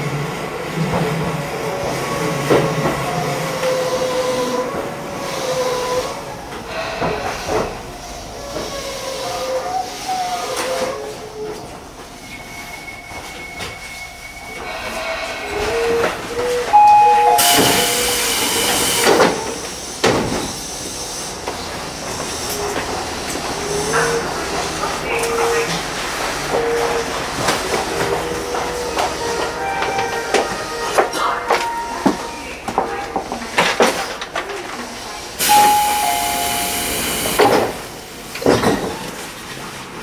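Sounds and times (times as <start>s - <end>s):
electric train slowing: 0.0s - 40.0s
air hiss: 35.4s - 38.0s.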